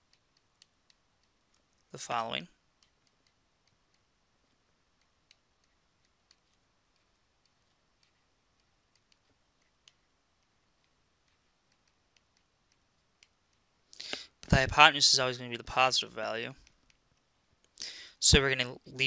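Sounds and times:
stylus tapping on pen tablet: 2.7s - 13.7s.

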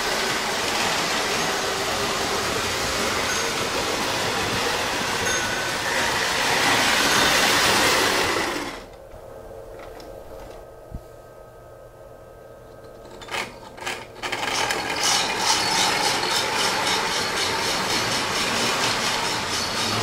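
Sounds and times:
toy trains rumbling on track: 0.0s - 9.0s, 13.0s - 20.0s.

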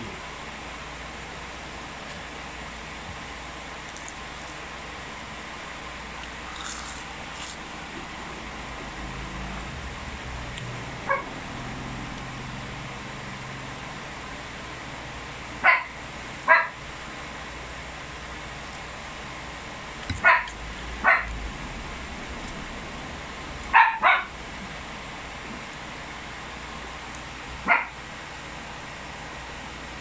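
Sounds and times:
dog barking: 11.1s - 11.3s, 15.6s - 16.8s, 20.2s - 21.3s, 23.7s - 24.3s, 27.6s - 28.0s
dog yelping: 20.2s - 20.5s.

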